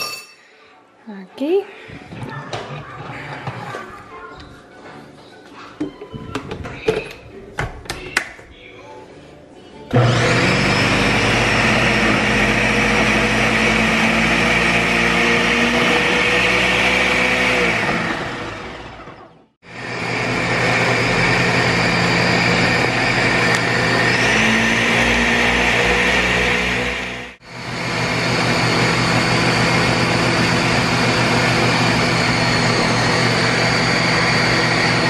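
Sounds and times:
blender grinding peanuts: 9.9 - 19.0, 19.7 - 35.0.

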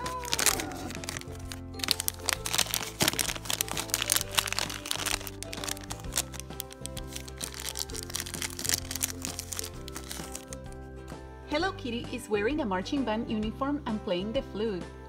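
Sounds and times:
plastic wrapper crinkling: 0.0 - 11.2.

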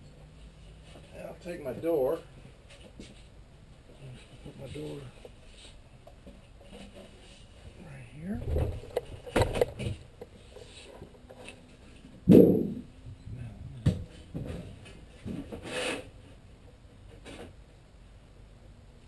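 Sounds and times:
metal sheet scraping: 12.3 - 12.8
sharp knock: 12.3 - 12.8.

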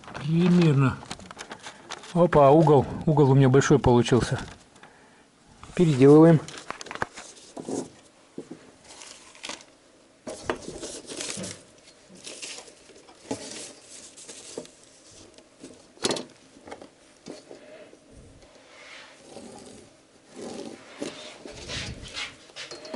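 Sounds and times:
paper rustling and sliding: 5.7 - 8.1, 8.8 - 9.7, 10.3 - 15.8, 18.8 - 22.7.

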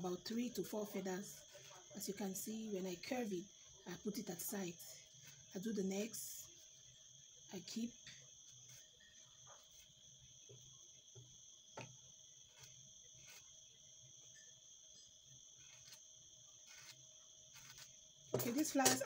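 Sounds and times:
scissor blade scraping feathers: 12.5 - 13.5, 15.6 - 16.0, 16.6 - 19.0.

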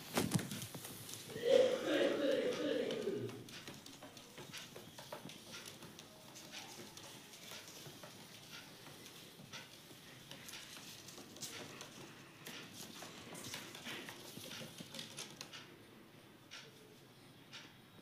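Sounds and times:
bird feet tapping on wooden floor: 3.0 - 15.5.

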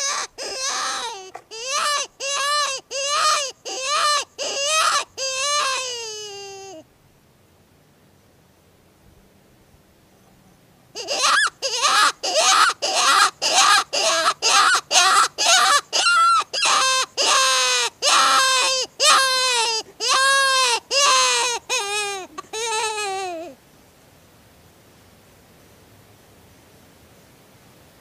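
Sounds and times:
predator call cries and wails: 0.0 - 6.8, 11.0 - 23.6.

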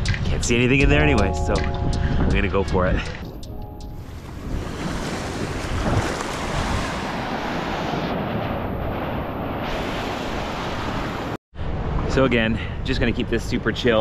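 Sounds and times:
wind buffeting microphone: 0.0 - 12.1
small waves breaking: 4.0 - 11.4.

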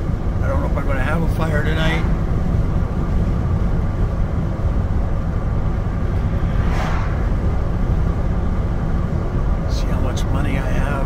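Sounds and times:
engine and road rumble: 0.0 - 11.0
car passing by: 5.9 - 8.9.

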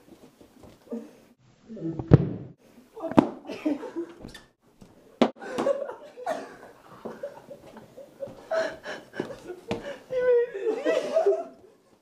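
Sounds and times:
people chuckling and muttering: 5.4 - 11.8.

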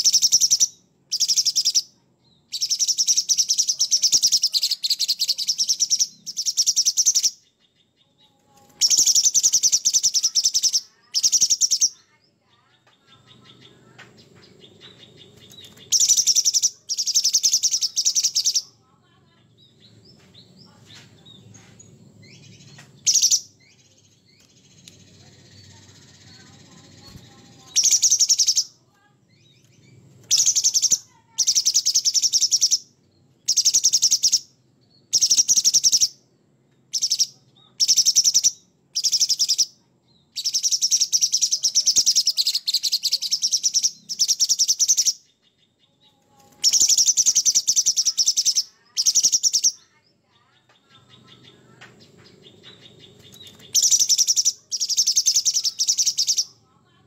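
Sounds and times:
bird singing harsh high song: 0.0 - 56.7.

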